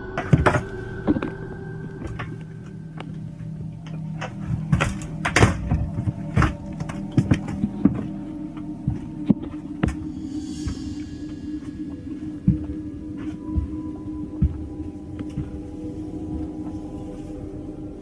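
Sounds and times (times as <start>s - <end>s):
steady low hum: 0.0s - 18.0s.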